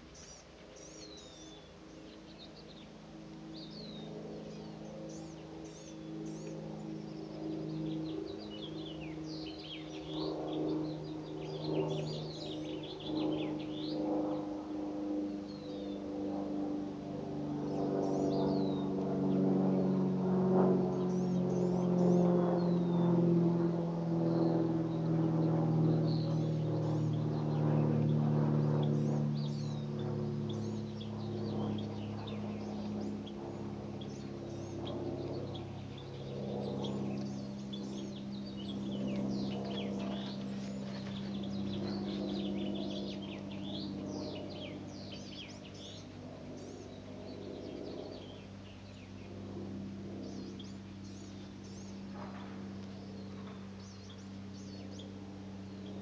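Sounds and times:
songbirds chirping: 0:00.0 - 0:56.0.

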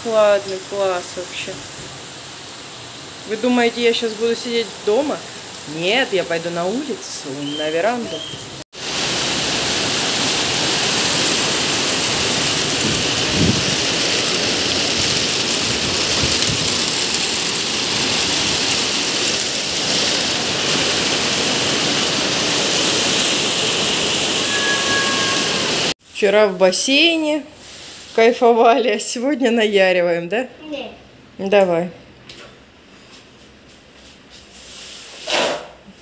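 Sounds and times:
heavy rain falling: 0:00.0 - 0:26.0.

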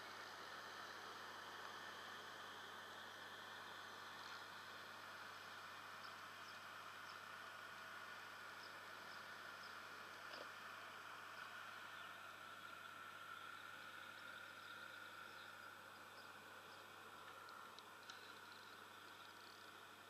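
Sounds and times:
faint clicks: 0:17.2 - 0:19.5.

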